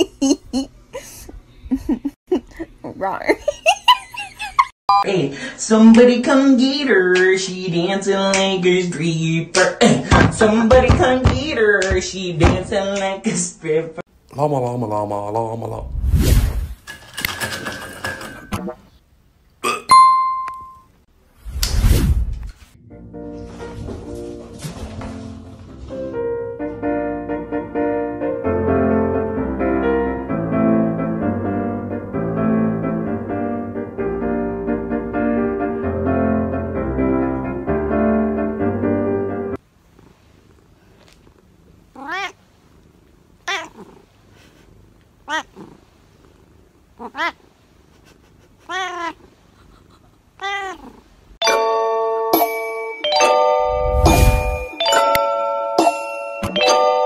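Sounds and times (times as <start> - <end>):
chime ringing tones: 19.9 - 20.9, 51.4 - 57.0
piano music: 22.8 - 39.6, 51.4 - 57.0
cat meowing: 42.0 - 42.4, 43.4 - 44.0, 45.2 - 45.7, 47.0 - 47.4, 48.6 - 49.3, 50.4 - 51.0.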